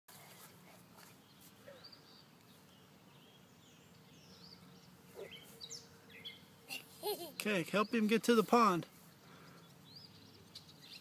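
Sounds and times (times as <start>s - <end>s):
faint bird chirps: 1.1s - 6.8s.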